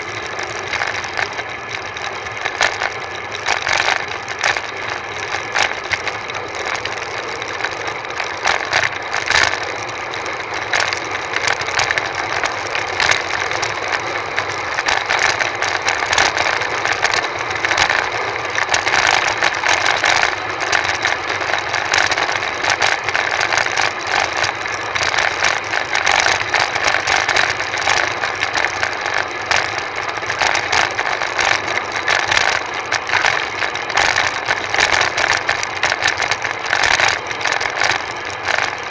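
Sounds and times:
road rattle clicks and jolts: 0:00.0 - 0:38.9.

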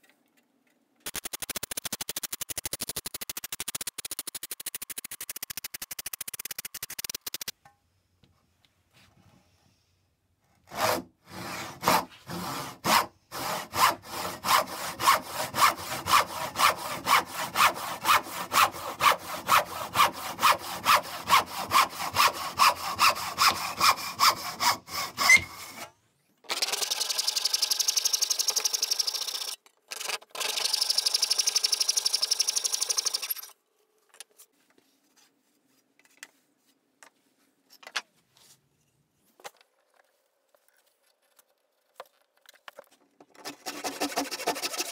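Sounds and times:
hand saw cutting wood: 0:10.6 - 0:26.0, 0:43.4 - 0:44.9.

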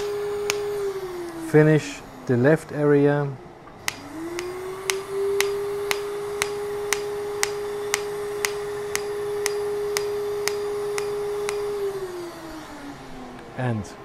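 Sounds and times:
laser firing sharp snaps: 0:00.0 - 0:00.8, 0:03.7 - 0:11.8
laser unit humming: 0:00.0 - 0:14.0.

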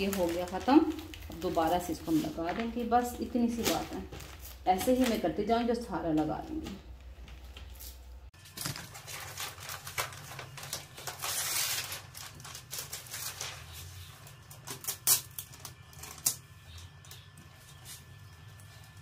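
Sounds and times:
cloth rubbing plastic sheet: 0:00.0 - 0:05.3
plastic sheet crackling: 0:00.0 - 0:18.2.

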